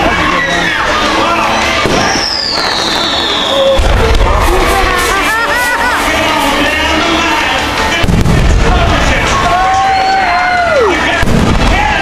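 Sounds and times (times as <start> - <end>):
fireworks booming: 1.6 - 9.6, 11.1 - 12.0.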